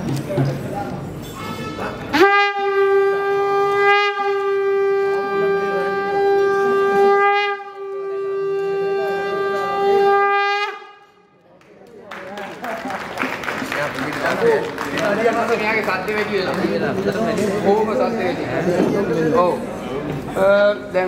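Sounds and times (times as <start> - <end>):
conch shell blown: 1.4 - 11.3.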